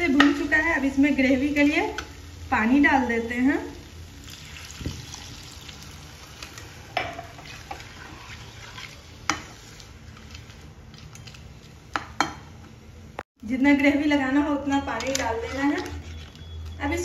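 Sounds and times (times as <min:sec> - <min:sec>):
water sizzling in hot pan: 0:00.0 - 0:10.7
spatula stirring: 0:06.4 - 0:12.4.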